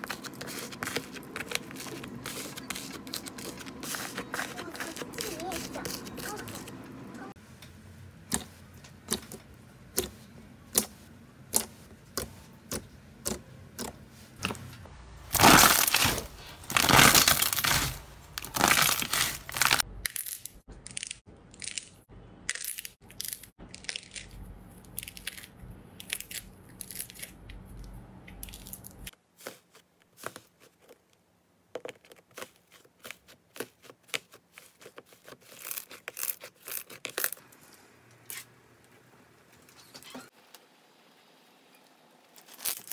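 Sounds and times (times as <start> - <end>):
slime crackling: 0.0 - 6.8, 15.3 - 21.9.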